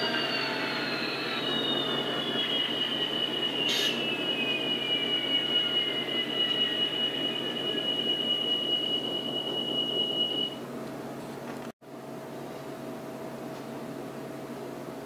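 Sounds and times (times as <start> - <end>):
high steady whine: 0.0 - 10.6
whine falling in pitch: 0.0 - 10.6
faint hum: 0.0 - 15.0.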